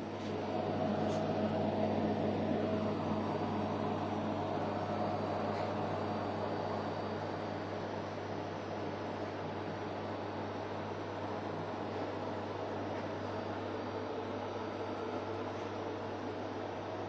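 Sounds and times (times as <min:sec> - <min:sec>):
electrical hum of cooling equipment: 0:00.0 - 0:17.0.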